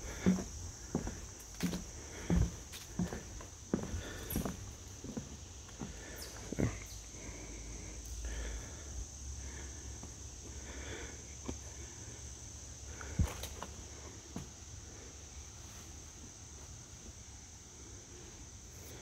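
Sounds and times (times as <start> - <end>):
footsteps on a trail: 0.0 - 6.8
insects droning: 0.0 - 19.0.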